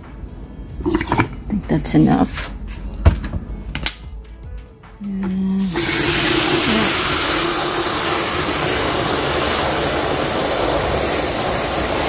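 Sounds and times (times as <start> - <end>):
hose water spraying into bucket: 5.6 - 12.0.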